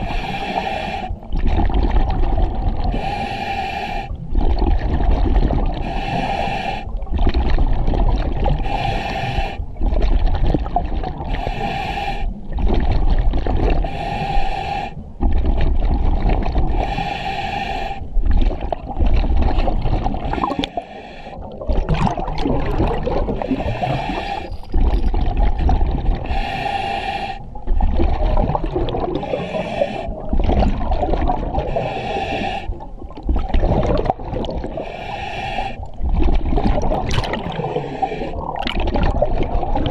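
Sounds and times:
exhalation bubbles gurgling: 1.2s - 3.1s, 4.2s - 5.9s, 7.0s - 8.9s, 9.8s - 11.6s, 12.4s - 13.9s, 15.2s - 16.9s, 18.2s - 26.5s, 27.5s - 35.0s, 35.8s - 39.9s
regulator inhalation hiss: 5.8s - 6.9s, 8.7s - 9.6s, 11.4s - 12.3s, 13.9s - 15.0s, 16.8s - 18.0s, 26.3s - 27.5s, 34.8s - 35.8s.

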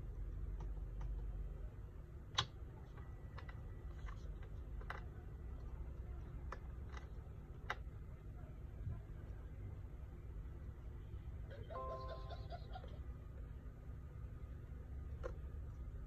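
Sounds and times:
low steady hum: 0.0s - 16.0s
fingers clicking on laptop parts: 2.3s - 7.9s.

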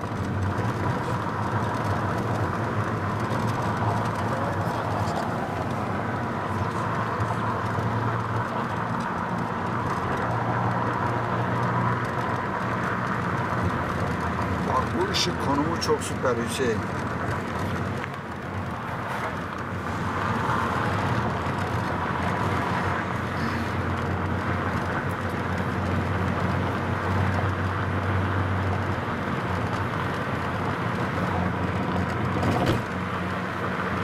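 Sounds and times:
car engine hum: 0.0s - 34.0s
road and tyre noise: 0.0s - 34.0s.

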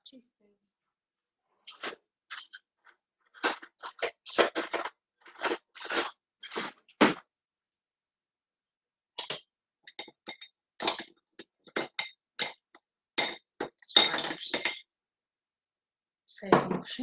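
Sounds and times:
metal utensils clinking: 13.2s - 14.8s.

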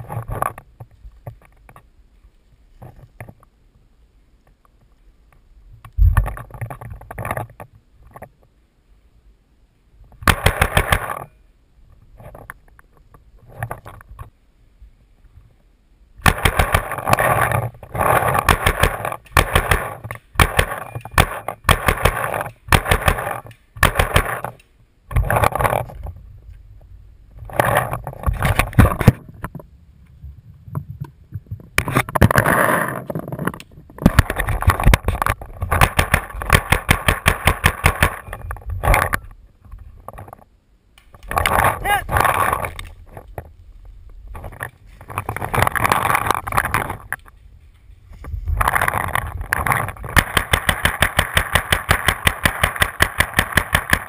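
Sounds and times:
paintball marker firing rapidly: 10.3s - 11.2s, 16.2s - 24.6s, 35.7s - 38.2s, 50.1s - 54.0s.

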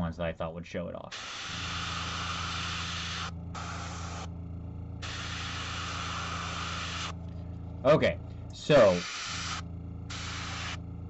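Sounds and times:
steady low hum: 0.0s - 11.0s
airbrush spraying hiss: 1.1s - 4.3s, 5.0s - 7.2s, 8.8s - 10.8s.

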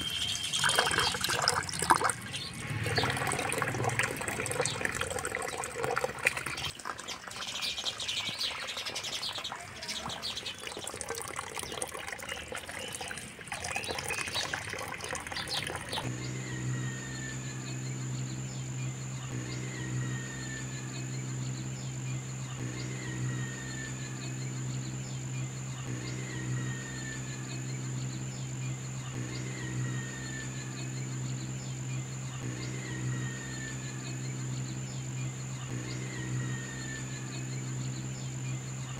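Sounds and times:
high-pitched insect drone: 0.0s - 6.7s, 8.1s - 38.9s
low steady hum: 0.0s - 8.6s, 11.0s - 38.9s
birds chirping: 0.0s - 38.9s.

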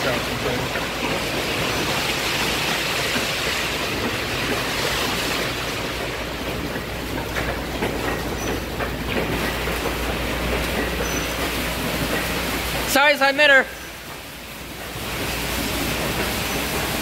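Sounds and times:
spraying water hiss: 8.4s - 17.0s.

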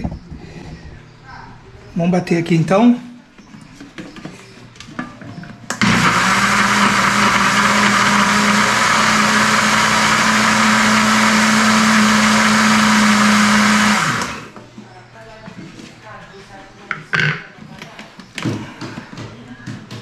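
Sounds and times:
blender running: 5.8s - 14.6s.

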